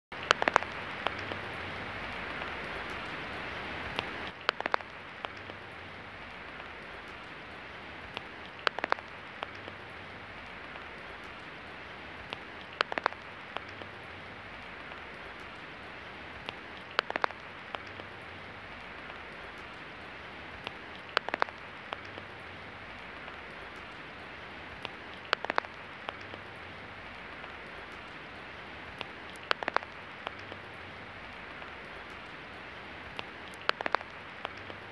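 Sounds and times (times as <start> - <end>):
steady rain falling: 0.0 - 34.9
sharp dripping taps: 0.2 - 9.8, 10.4 - 14.0, 14.6 - 18.1, 18.8 - 22.3, 24.8 - 26.5, 28.9 - 30.7, 33.0 - 34.9.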